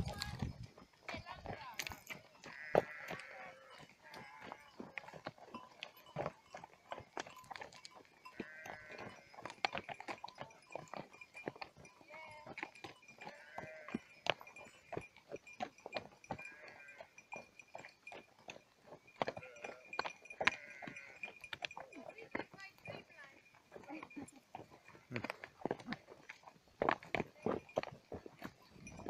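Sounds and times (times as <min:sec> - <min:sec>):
bells clinking: 0:00.0 - 0:25.5, 0:26.9 - 0:29.0
sheep bleating: 0:02.4 - 0:05.0, 0:08.3 - 0:09.4, 0:13.2 - 0:14.2, 0:16.4 - 0:17.0, 0:19.3 - 0:21.2.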